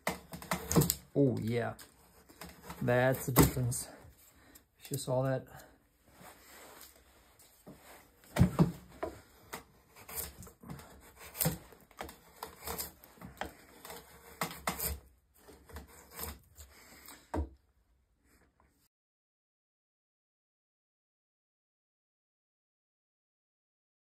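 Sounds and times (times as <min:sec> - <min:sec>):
wood scraping: 0:00.0 - 0:05.2, 0:06.1 - 0:17.5.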